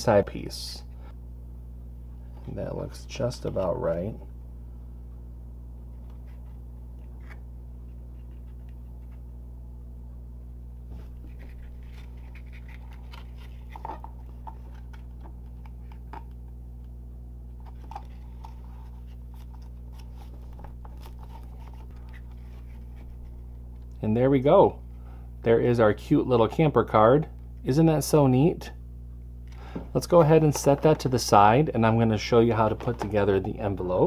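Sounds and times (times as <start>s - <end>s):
low hum: 0.0s - 34.0s
cardstock crinkling and rustling: 11.0s - 16.3s, 17.6s - 23.4s.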